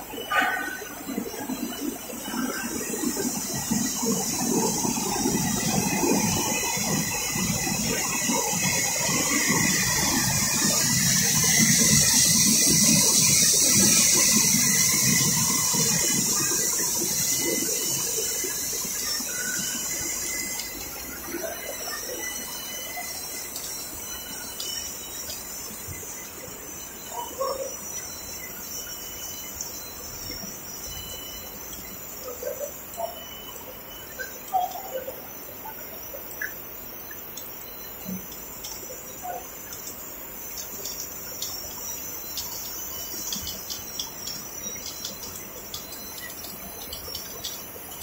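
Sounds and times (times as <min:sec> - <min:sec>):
high machinery hiss: 0:00.0 - 0:32.2.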